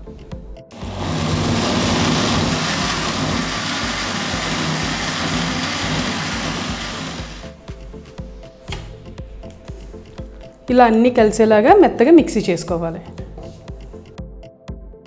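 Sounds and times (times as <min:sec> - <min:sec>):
mixer grinder running: 0:00.7 - 0:07.6.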